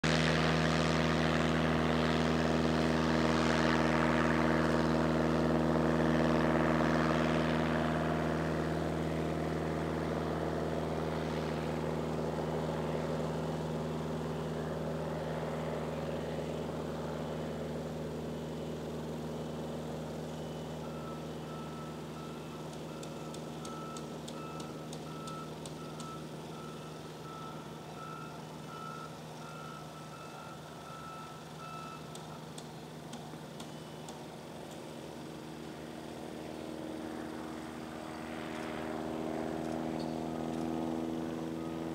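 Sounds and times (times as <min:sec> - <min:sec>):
airplane engine drone: 0:00.0 - 0:41.9
repeated high beep: 0:20.4 - 0:32.1.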